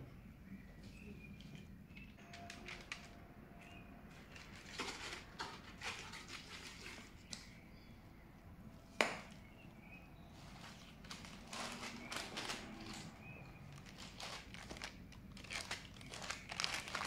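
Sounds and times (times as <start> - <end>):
parchment paper crinkling: 2.2 - 7.5, 10.3 - 17.0.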